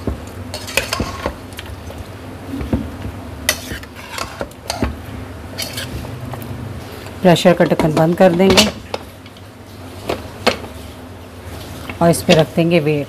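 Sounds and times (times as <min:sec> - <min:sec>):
metal spoon scraping a pot: 0:00.5 - 0:01.4, 0:03.5 - 0:04.9, 0:05.6 - 0:06.0.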